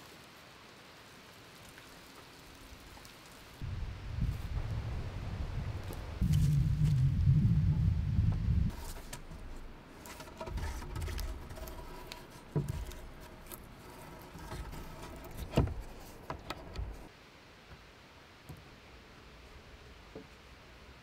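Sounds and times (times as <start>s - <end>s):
faint rustling: 8.7s - 17.1s
wooden logs knocking: 8.7s - 17.1s.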